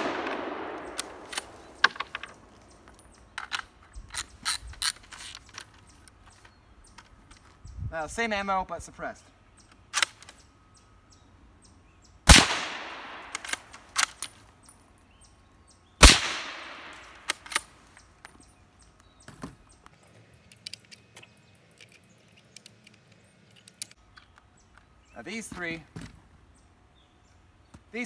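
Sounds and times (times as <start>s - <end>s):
suppressed rifle shots: 0.0s - 2.5s, 12.3s - 14.1s, 16.0s - 17.6s.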